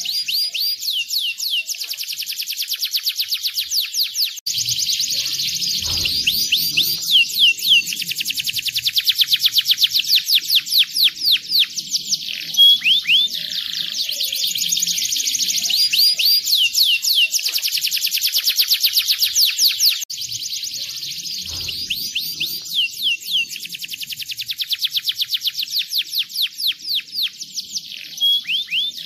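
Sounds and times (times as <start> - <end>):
canary singing trills: 0.0 - 29.0.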